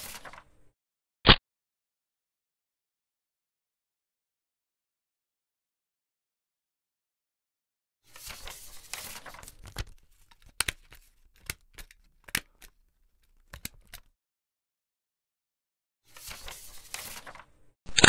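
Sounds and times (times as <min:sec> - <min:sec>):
paper rustling: 0:00.0 - 0:00.5, 0:08.1 - 0:14.1, 0:16.1 - 0:18.0.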